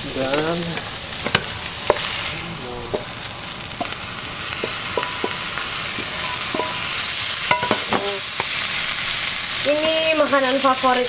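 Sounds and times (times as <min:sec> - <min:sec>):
food sizzling in frying pan: 0:00.0 - 0:11.0
spatula scraping and clinking pan: 0:04.6 - 0:08.6.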